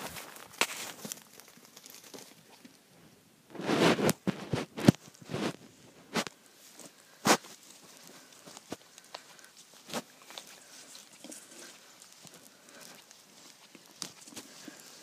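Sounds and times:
leaves crunching underfoot: 0.0s - 2.4s, 3.6s - 15.0s
dry leaves rustling: 0.0s - 2.6s, 6.4s - 15.0s.

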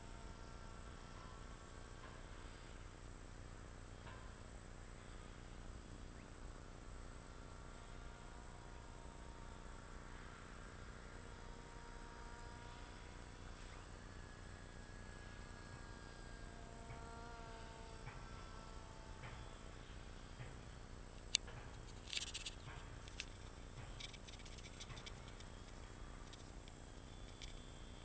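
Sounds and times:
steady background hiss: 0.0s - 28.0s
high insect chirping: 7.4s - 28.0s.

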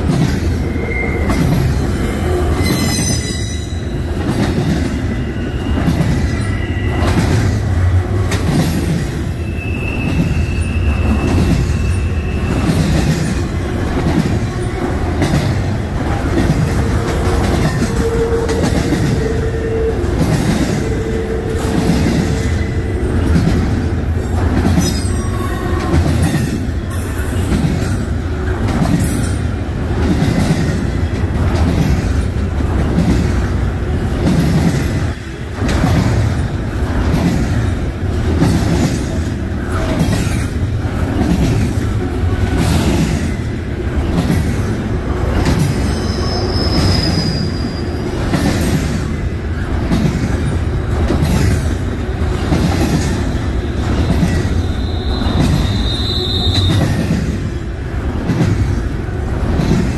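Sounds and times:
train wheels rumbling on rail: 0.0s - 59.9s
high-pitched wheel squeals: 0.4s - 4.0s, 5.0s - 7.6s, 9.3s - 12.9s, 45.8s - 48.1s, 54.3s - 57.0s.

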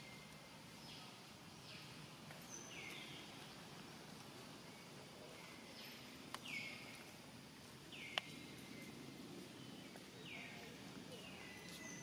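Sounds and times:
faint outdoor background: 0.0s - 12.0s.

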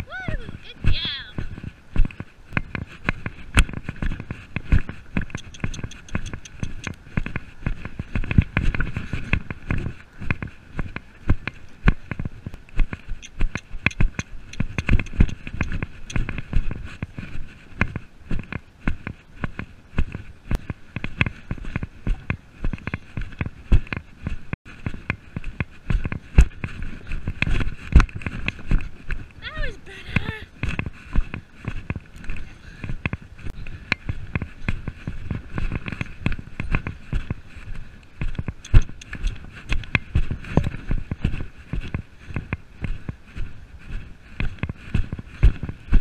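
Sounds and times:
horse hoofbeats on grass: 0.0s - 46.0s
saddle and bridle rattling: 0.0s - 46.0s.

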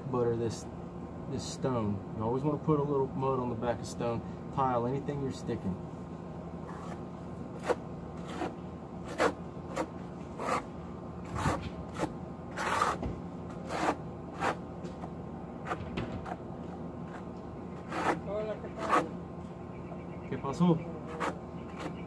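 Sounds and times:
trowel scraping mortar on stone: 6.6s - 7.0s, 7.6s - 16.4s, 17.0s - 19.1s, 21.0s - 22.0s.

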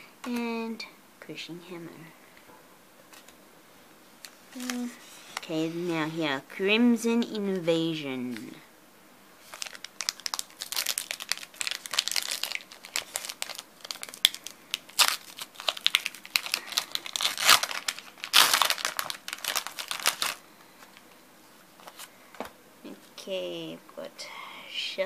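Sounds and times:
foil wrapper crinkling and tearing: 4.2s - 5.5s, 9.4s - 21.1s
cards rustling: 4.2s - 6.1s, 9.4s - 21.2s, 21.8s - 22.5s.

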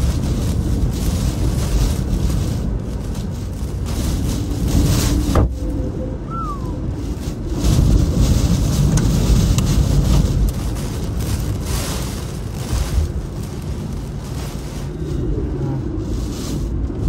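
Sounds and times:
rain on a car: 0.0s - 17.0s
wind buffeting a car: 0.0s - 17.0s.

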